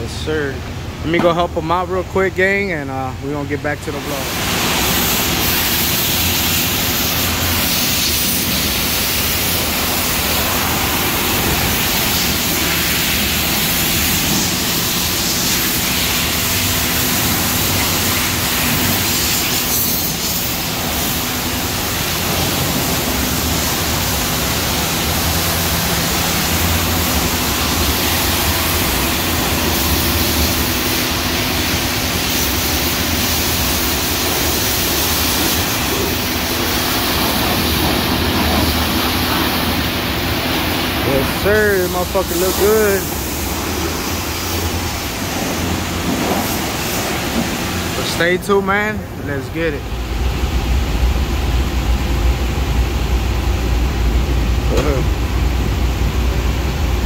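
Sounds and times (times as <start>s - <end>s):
machine hum: 0.0s - 57.0s
pressure washer spray hiss: 4.0s - 48.3s.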